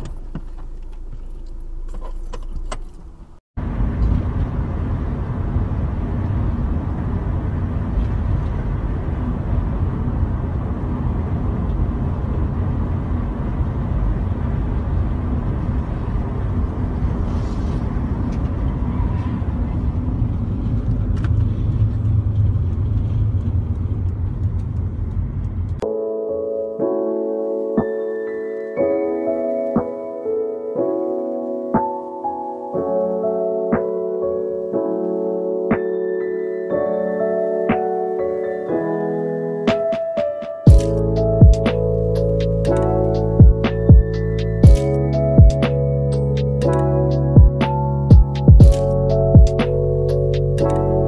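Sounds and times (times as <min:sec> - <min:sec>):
car road and wind rumble: 0:00.0 - 0:25.8, 0:40.7 - 0:51.0
piano music: 0:25.8 - 0:51.0.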